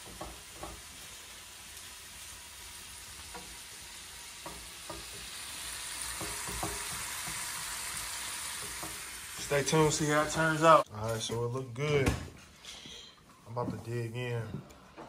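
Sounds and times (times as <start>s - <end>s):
fried rice sizzling in a pan: 0.0s - 10.9s.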